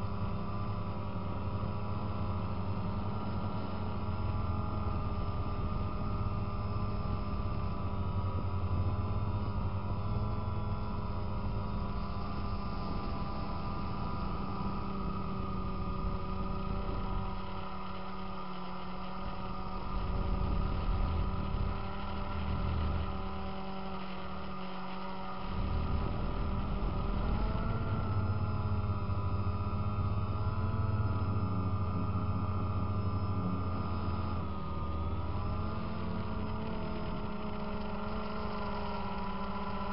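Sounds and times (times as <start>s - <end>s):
drone propellers whining: 11.4s - 39.9s
low rumble: 25.4s - 29.6s.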